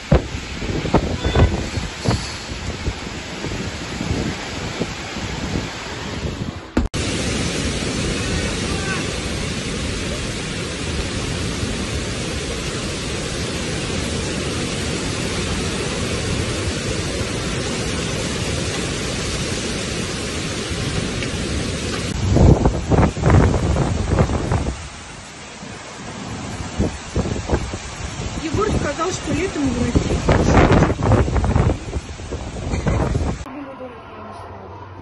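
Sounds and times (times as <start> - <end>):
heavy rain: 0.0 - 33.5
strong wind: 0.0 - 33.5.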